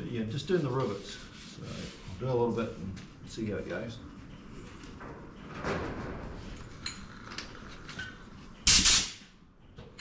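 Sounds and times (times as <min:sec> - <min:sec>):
sandblasting gun hiss: 0:08.7 - 0:09.2.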